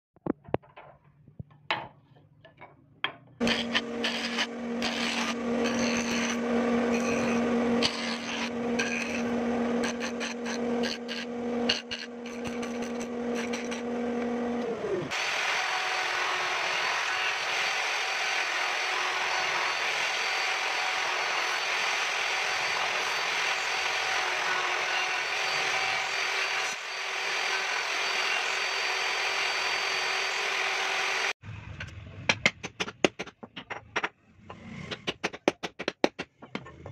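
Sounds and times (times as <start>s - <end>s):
wood knocking on bench: 1.7s - 3.3s, 35.0s - 36.9s
jointer-planer humming: 3.4s - 31.3s
electric router running: 3.4s - 31.4s.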